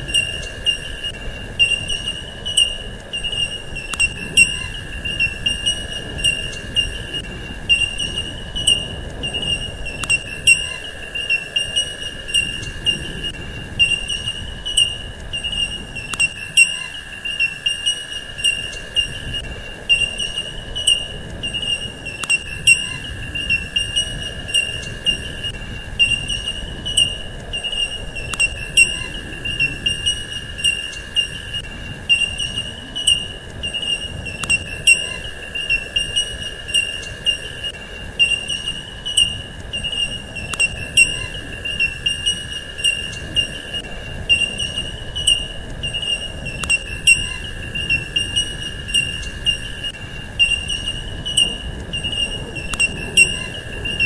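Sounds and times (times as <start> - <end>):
cricket-like trill: 0.0 - 54.0
steady insect tone: 0.0 - 54.0
sharp clicks: 0.1 - 22.9, 29.9 - 41.2, 44.4 - 47.2.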